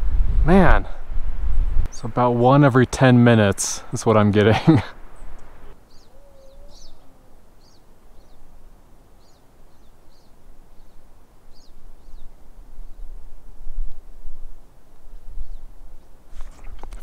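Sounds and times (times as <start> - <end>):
wind buffeting microphone: 0.0 - 2.5
small bird chirping: 5.2 - 8.5, 9.2 - 13.0.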